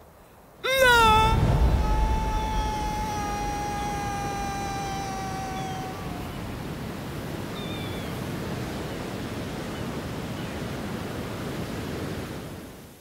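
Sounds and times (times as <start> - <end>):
wind: 0.0 - 13.0
long tone dipping in pitch: 0.6 - 6.4
sea surf: 0.6 - 13.0.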